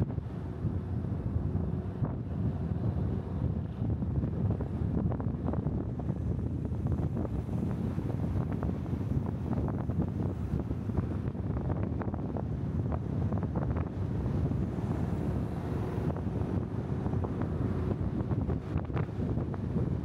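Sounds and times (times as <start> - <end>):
car road noise: 0.0 - 20.0
wind buffeting microphone: 0.0 - 20.0.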